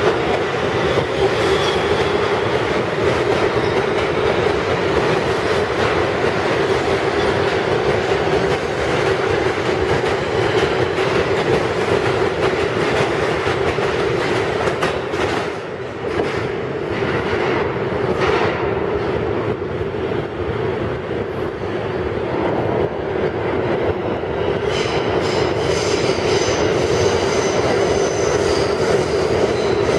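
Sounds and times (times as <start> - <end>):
train rumbling: 0.0 - 29.9
high-pitched wheel squeal: 1.2 - 2.3.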